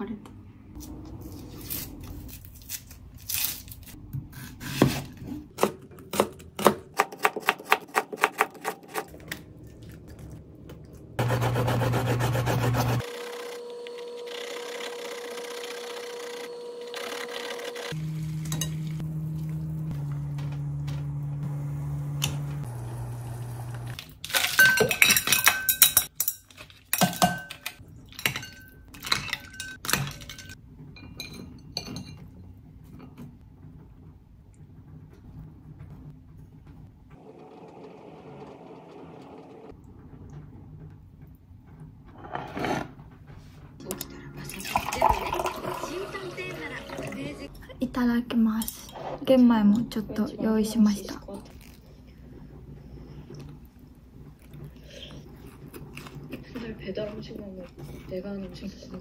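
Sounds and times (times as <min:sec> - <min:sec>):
tap water running: 0:17.9 - 0:24.0, 0:44.5 - 0:47.4.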